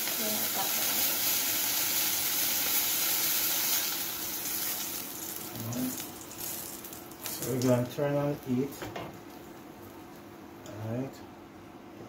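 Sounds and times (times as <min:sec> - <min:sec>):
chicken sizzling in butter: 0:00.0 - 0:08.0.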